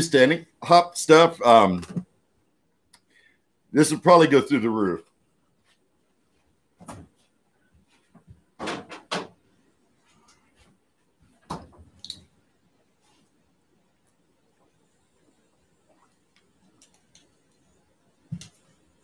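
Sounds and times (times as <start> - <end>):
household knocks and clunks: 6.8 - 7.2, 8.1 - 9.4.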